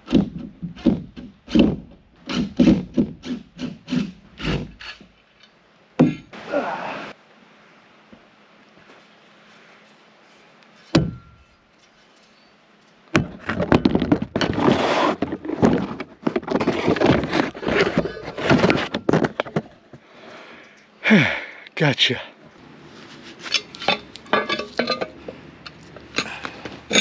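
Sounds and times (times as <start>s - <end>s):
sharp thunk: 10.9s - 11.3s
hard objects knocking and clattering: 13.2s - 19.8s.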